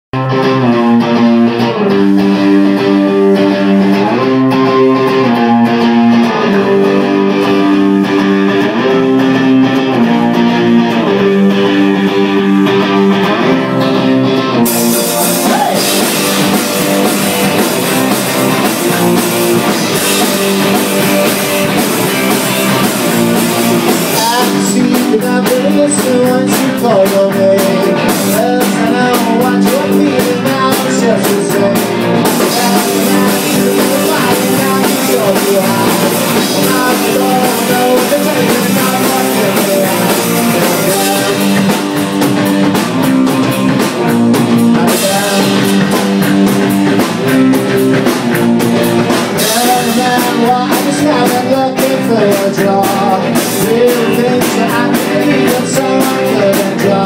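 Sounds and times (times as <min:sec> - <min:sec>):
electric guitars and bass riff: 0:00.0 - 0:57.0
drum kit with cymbals: 0:14.6 - 0:57.0.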